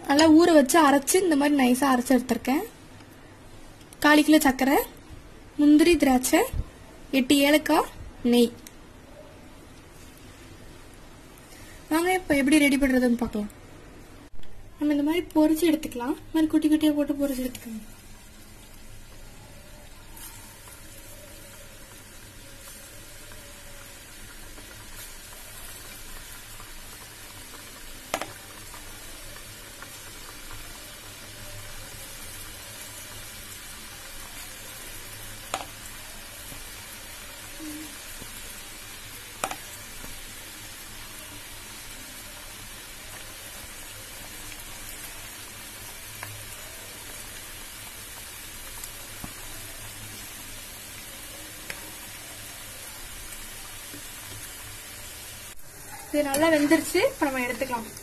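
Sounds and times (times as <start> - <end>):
hot oil sizzling: 14.8 - 58.0.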